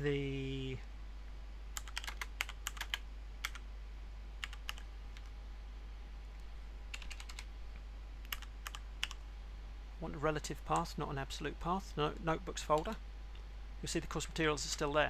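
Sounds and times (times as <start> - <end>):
steady low hum: 0.0 - 15.0
keyboard typing: 1.8 - 3.6, 4.4 - 5.3, 6.9 - 7.5, 8.2 - 9.2.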